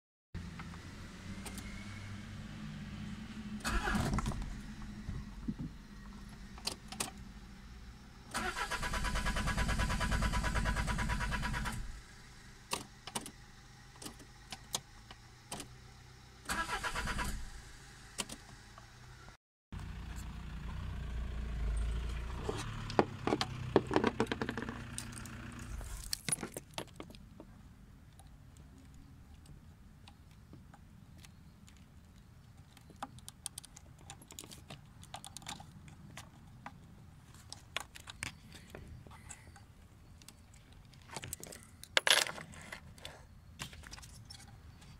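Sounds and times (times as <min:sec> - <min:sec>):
starter motor cranking engine: 0:03.6 - 0:04.9, 0:08.3 - 0:12.0, 0:16.4 - 0:17.6
clicks and handling sounds: 0:23.3 - 0:44.9.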